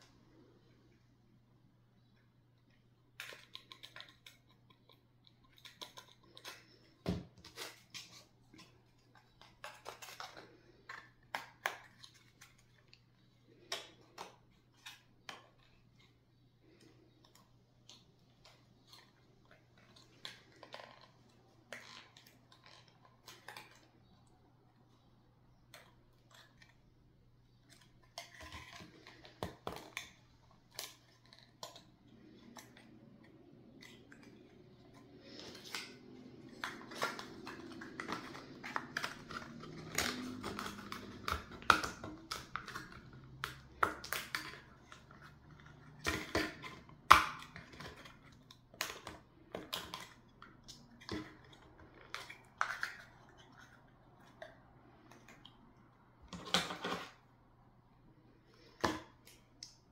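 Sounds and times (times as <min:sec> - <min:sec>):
paper rustling: 0:31.1 - 0:41.8.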